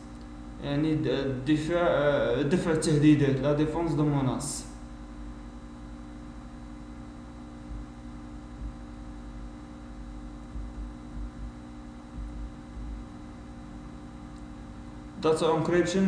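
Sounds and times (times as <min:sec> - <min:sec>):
electrical mains hum: 0:00.0 - 0:16.0
soft low bumps: 0:06.8 - 0:15.1.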